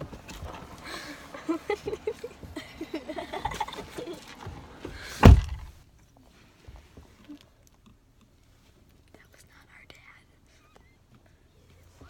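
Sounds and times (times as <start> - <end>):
knocks and rustles: 3.4 - 5.8
car door slamming shut: 4.8 - 5.8.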